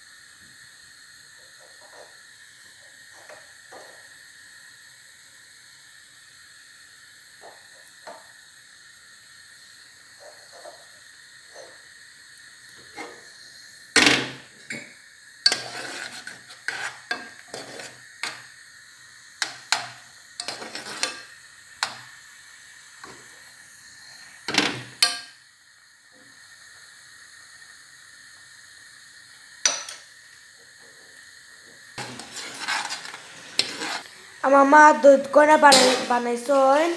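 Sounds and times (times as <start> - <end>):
faint steady hiss: 0.0 - 36.9
spoon scraping metal saucepan: 15.5 - 18.4, 19.4 - 22.0, 32.0 - 34.1.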